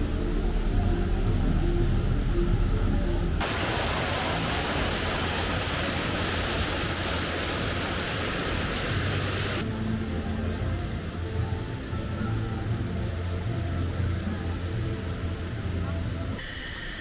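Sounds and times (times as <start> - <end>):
background music: 0.0 - 16.4
fountain splashing into pond: 3.4 - 9.6.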